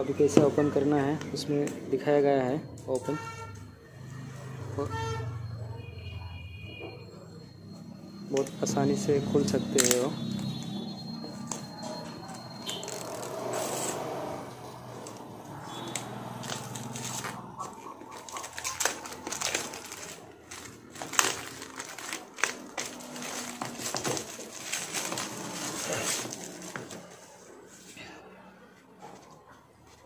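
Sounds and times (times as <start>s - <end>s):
plastic wrap crinkling and tearing: 11.4s - 14.1s, 15.0s - 27.3s.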